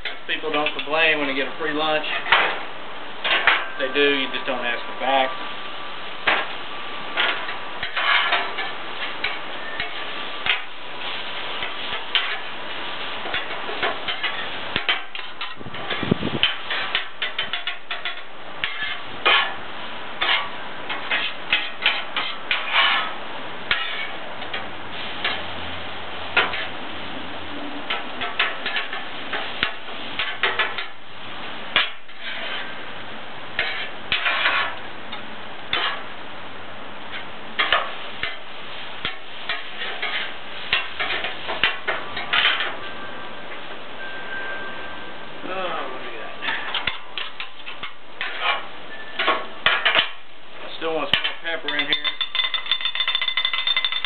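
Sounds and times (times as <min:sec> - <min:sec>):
metal spatulas scraping on griddle: 0:00.0 - 0:02.5, 0:07.2 - 0:19.6, 0:20.2 - 0:25.5, 0:26.4 - 0:26.8, 0:27.9 - 0:31.0, 0:31.7 - 0:32.8, 0:33.6 - 0:34.8, 0:35.7 - 0:36.0, 0:37.1 - 0:38.4, 0:39.0 - 0:42.8, 0:46.4 - 0:50.2, 0:51.0 - 0:54.0
food sizzling: 0:05.5 - 0:32.8, 0:37.0 - 0:41.9.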